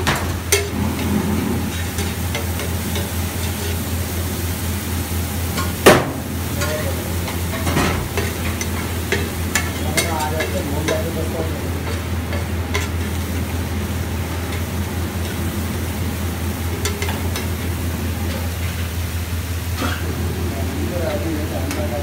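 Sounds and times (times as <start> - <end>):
food sizzling: 0.0 - 22.0
metal spatula scraping griddle: 0.5 - 3.8.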